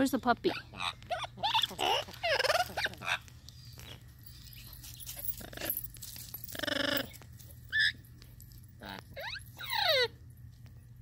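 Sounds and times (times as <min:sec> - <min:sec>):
parrot calling: 0:00.5 - 0:04.0.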